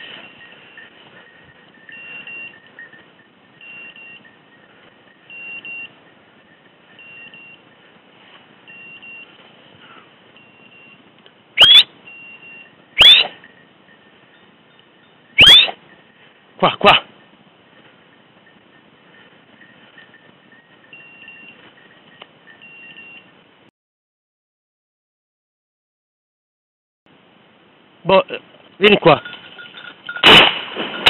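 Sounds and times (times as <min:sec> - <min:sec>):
beeper collar short high beeps: 0:01.7 - 0:04.5, 0:05.2 - 0:06.0, 0:07.0 - 0:07.7, 0:08.7 - 0:09.4, 0:10.4 - 0:11.0, 0:11.6 - 0:13.6, 0:15.4 - 0:15.8, 0:20.0 - 0:21.6
short rising whistles: 0:11.6 - 0:13.5, 0:15.4 - 0:15.8.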